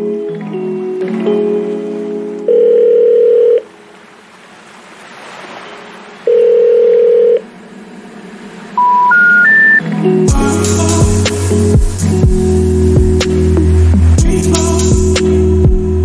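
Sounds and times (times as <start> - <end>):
rising telephone tones: 2.5 - 3.7, 6.3 - 7.4, 8.8 - 9.8
telephone ringing tone: 2.5 - 3.7, 6.3 - 7.4, 8.8 - 9.8.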